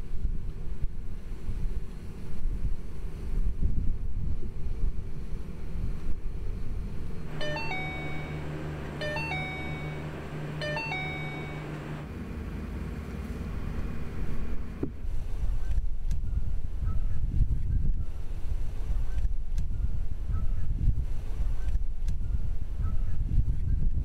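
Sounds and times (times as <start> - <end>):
car rumble: 6.7 - 15.4
two-note electronic warning chimes: 7.2 - 12.1.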